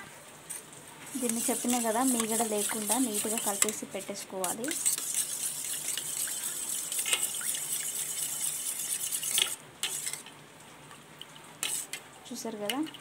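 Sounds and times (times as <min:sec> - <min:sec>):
liquid swishing in bowl: 0:01.1 - 0:10.3, 0:11.6 - 0:12.0.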